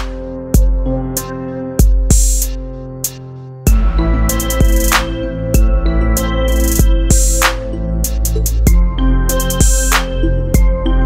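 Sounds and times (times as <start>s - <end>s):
drum beat with kick and snare: 0.0s - 0.9s, 1.8s - 5.8s, 6.6s - 10.7s
held synth chords: 0.0s - 11.0s.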